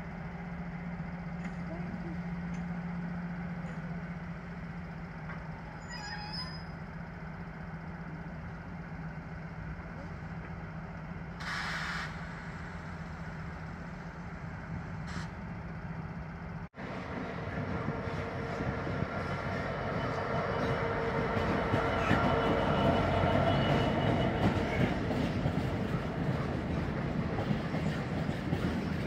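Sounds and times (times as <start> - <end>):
diesel locomotives idling: 0.0 - 5.8, 6.7 - 29.0
air hiss: 11.4 - 12.9.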